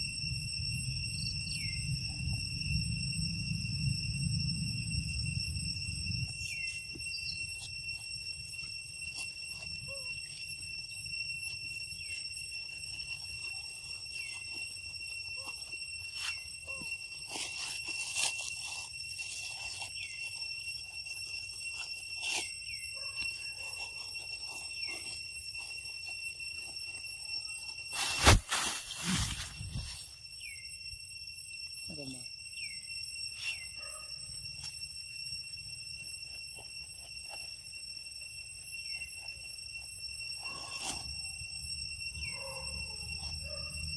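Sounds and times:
insects droning: 0.0s - 43.9s
sharp thump and rustle: 28.0s - 30.0s.

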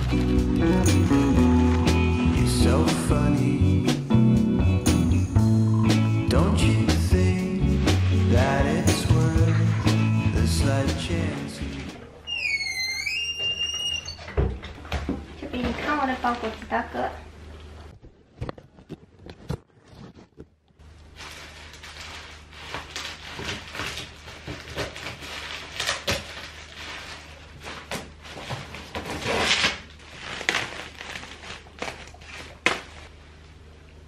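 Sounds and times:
plastic sack crinkling and rustling: 0.0s - 1.3s, 7.6s - 9.8s, 15.5s - 17.0s, 21.0s - 33.2s.

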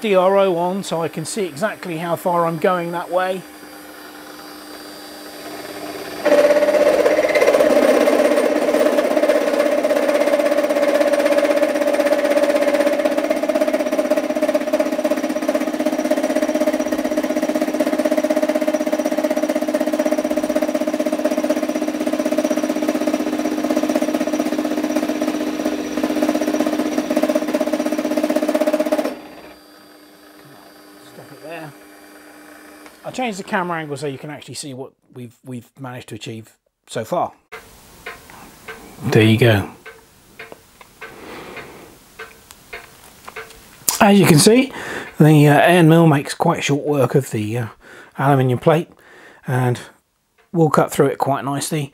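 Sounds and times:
end mill cutting whine: 0.0s - 34.4s.

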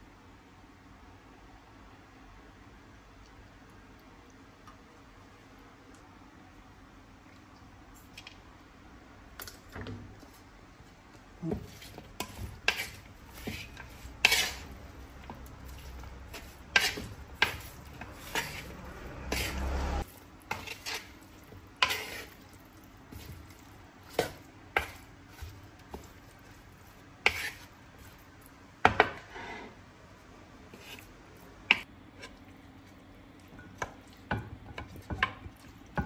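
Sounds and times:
stirring: 9.4s - 29.6s, 30.7s - 36.0s
utensils clinking against pots: 11.6s - 19.8s.

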